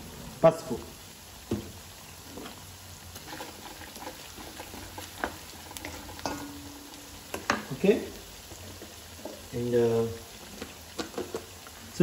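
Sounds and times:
onions sizzling in oil: 0.0 - 12.0
wooden spatula stirring: 2.2 - 11.8.

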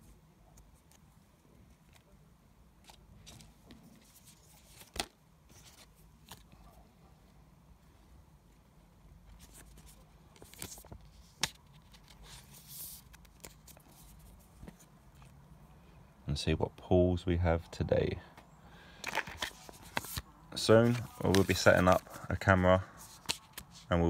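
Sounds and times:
packaging rustle: 19.0 - 22.3.

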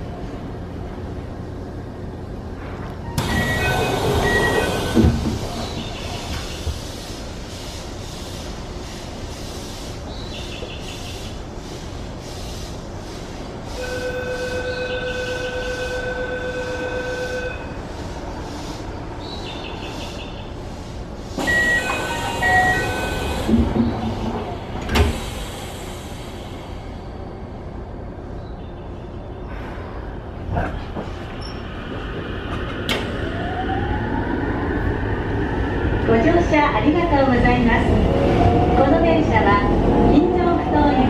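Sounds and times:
sliding doors closing: 3.1 - 6.9, 21.3 - 26.4.

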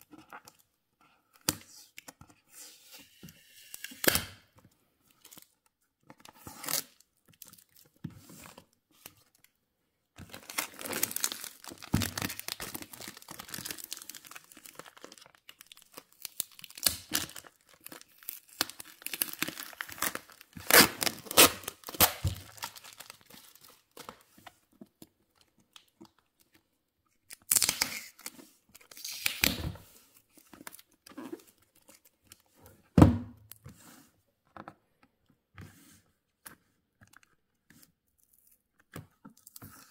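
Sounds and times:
plastic crinkling and tearing: 10.2 - 24.2, 27.3 - 29.6.

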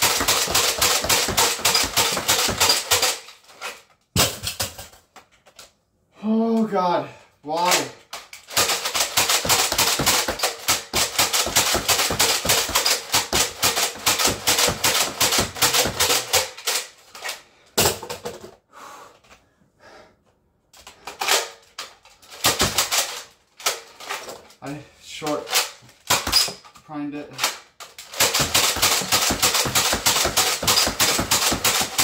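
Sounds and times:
foam dart blaster pumped and fired: 0.0 - 3.2, 8.5 - 16.6, 28.1 - 32.0.

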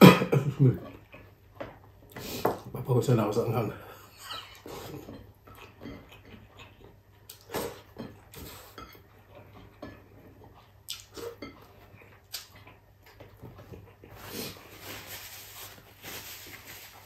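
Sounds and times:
chewing: 4.2 - 14.7.

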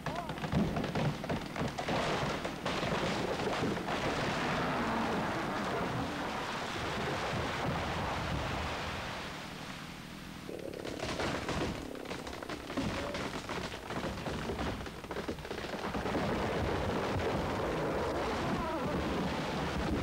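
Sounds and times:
wood cracking and snapping: 0.0 - 6.4, 10.5 - 20.0
branches crashing: 0.0 - 7.7, 10.5 - 20.0.

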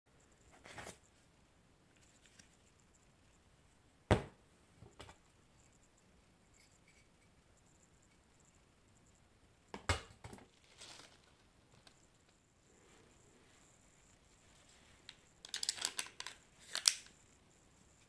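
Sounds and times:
objects knocking on hard table: 4.1 - 5.1.

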